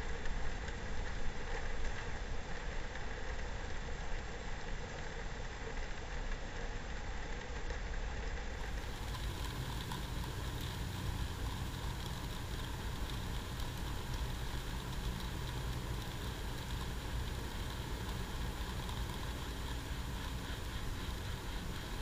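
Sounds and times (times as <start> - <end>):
box fan whirring: 0.0 - 22.0
wheat being poured: 8.6 - 22.0.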